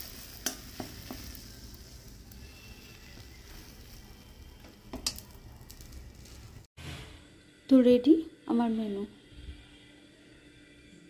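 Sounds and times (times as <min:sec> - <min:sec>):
hot oil sizzling in a pan: 0:00.0 - 0:06.7.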